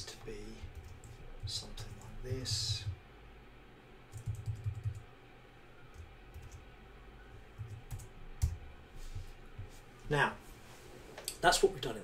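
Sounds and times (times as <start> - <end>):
keyboard keys tapping: 0.6 - 3.0, 4.1 - 5.0, 5.9 - 6.6, 7.5 - 8.6.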